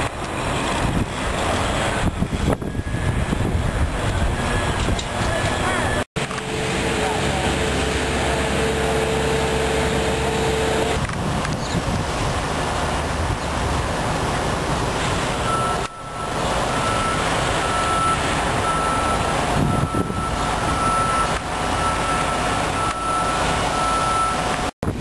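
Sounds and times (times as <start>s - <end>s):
engine noise: 0.0s - 25.0s
truck reversing alarm beeping: 1.1s - 11.0s, 15.2s - 24.7s.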